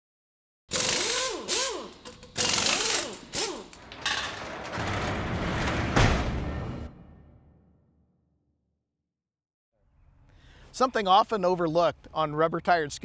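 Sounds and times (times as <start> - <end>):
harsh mechanical clatter: 0.7 - 7.0
heavy hit: 3.8 - 8.1
deep rumble: 3.9 - 7.8.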